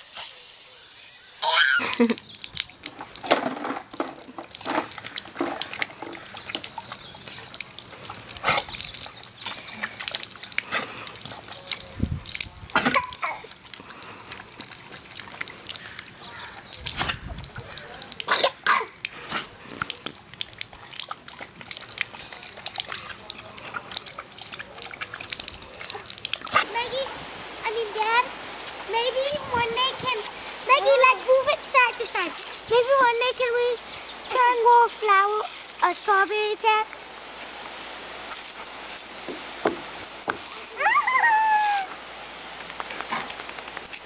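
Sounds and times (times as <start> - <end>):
water splattering on wet paving: 1.7 - 26.9, 38.3 - 40.8, 42.5 - 44.0.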